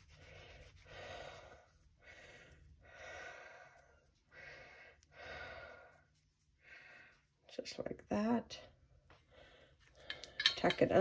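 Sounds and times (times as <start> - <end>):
faint breathing: 0.1 - 7.4, 9.1 - 10.5.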